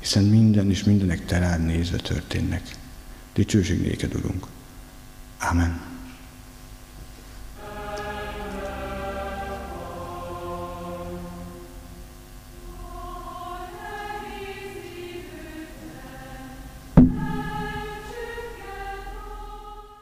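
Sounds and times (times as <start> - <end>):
choir singing long chords: 7.5 - 20.0.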